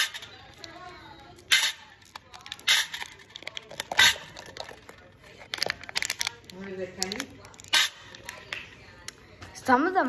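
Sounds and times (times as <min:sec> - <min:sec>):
plastic clicks and rattles: 0:01.5 - 0:09.2.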